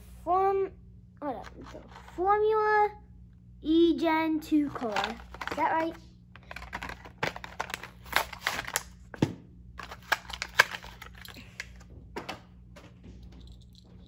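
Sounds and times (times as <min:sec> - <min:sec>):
plastic blister pack crinkling: 0:04.7 - 0:09.0, 0:09.8 - 0:11.8.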